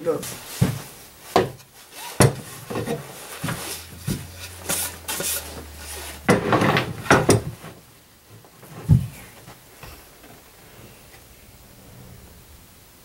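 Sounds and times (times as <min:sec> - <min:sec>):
board scraping slide: 0:01.8 - 0:07.1, 0:10.4 - 0:13.0
wooden boards knocking: 0:06.2 - 0:07.6.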